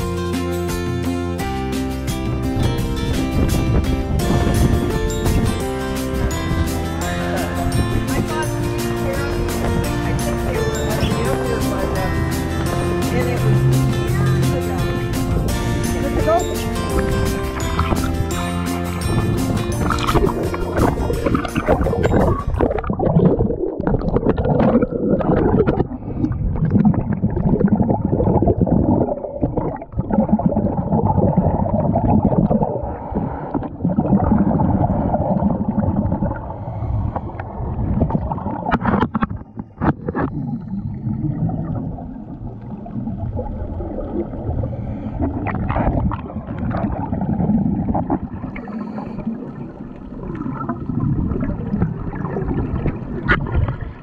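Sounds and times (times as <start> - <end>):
muffled underwater rumble: 2.6 - 18.2, 19.1 - 54.0
regulator bubbles gurgling: 19.0 - 54.0.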